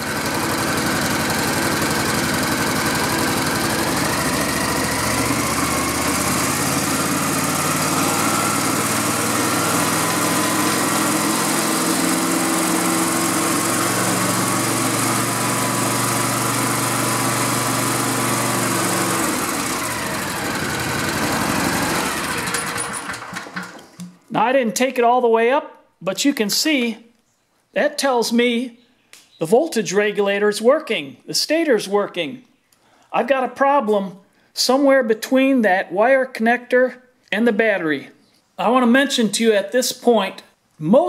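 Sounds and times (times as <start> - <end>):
mower engine running: 0.0 - 24.1.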